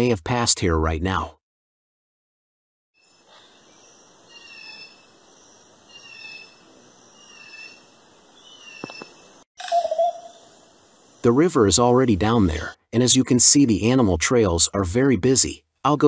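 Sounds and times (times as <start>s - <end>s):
animal high call: 5.9s - 10.8s.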